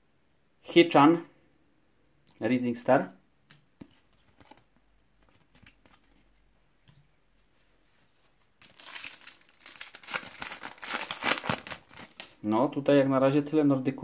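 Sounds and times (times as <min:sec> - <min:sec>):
foil card pack crinkling: 0:08.6 - 0:12.4.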